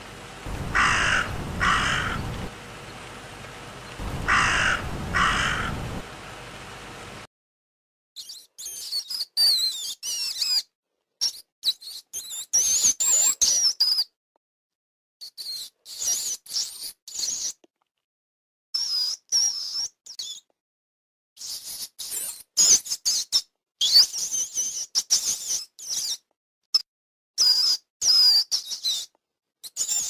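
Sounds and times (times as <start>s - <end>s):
crow cawing: 0.5s - 2.5s, 4.0s - 6.1s.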